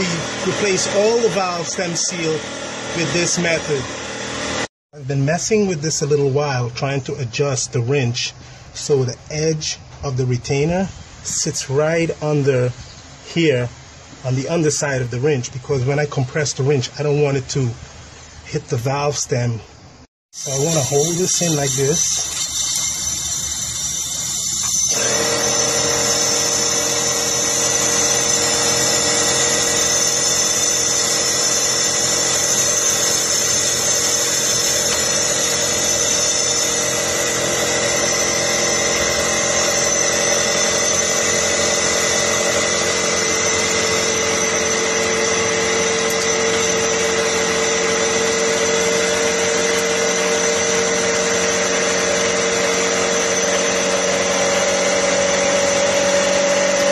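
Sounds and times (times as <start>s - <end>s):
machine droning: 0.0s - 5.2s, 19.9s - 56.9s.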